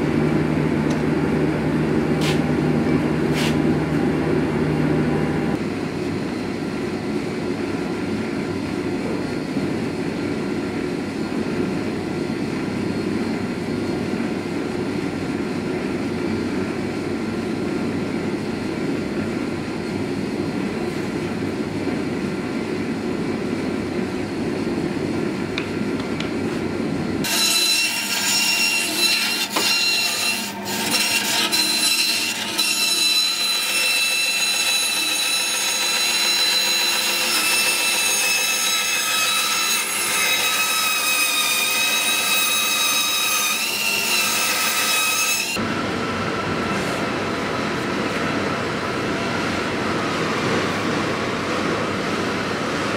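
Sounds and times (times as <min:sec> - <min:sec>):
low mechanical hum: 0:00.0 - 0:52.9
band saw cutting wood: 0:27.2 - 0:45.6.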